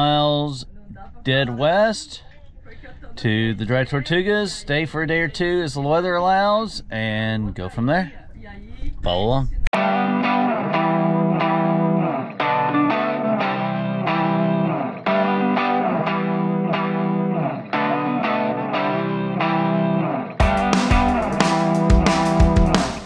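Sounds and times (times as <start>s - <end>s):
guitar through effects: 9.8s - 23.0s.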